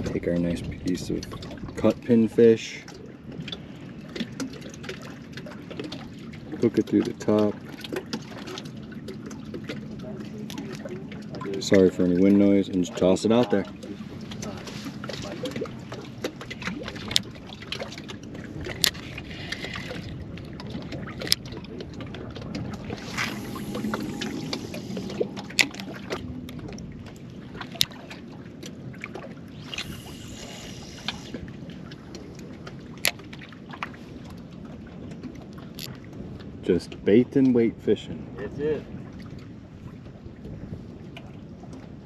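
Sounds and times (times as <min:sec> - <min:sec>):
wind buffeting microphone: 0:00.0 - 0:02.4, 0:03.0 - 0:42.0
water lapping against boat hull: 0:00.0 - 0:42.0
brief hissing swells: 0:23.0 - 0:25.9.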